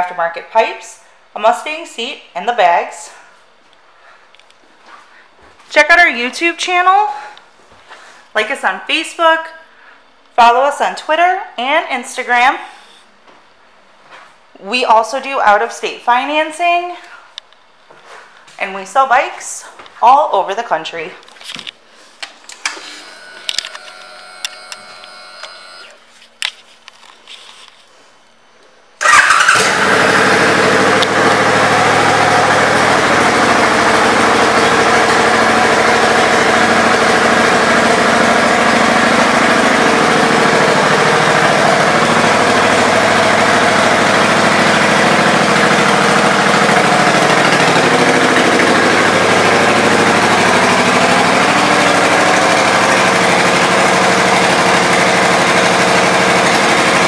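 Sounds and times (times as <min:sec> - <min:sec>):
motorcycle engine starting and idling: 0:22.6 - 0:26.0, 0:29.0 - 0:57.0.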